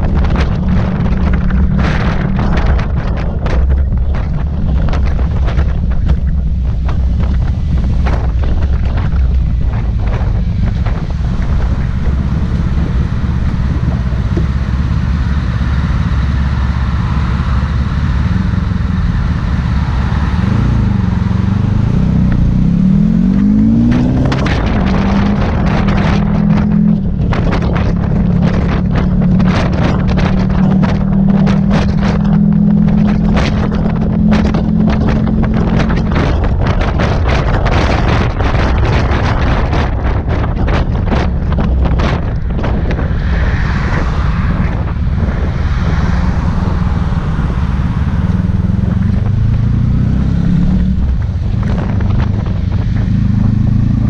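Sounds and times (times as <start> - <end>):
motorcycle engine accelerating: 0.0 - 54.0
wind buffeting microphone: 0.0 - 54.0.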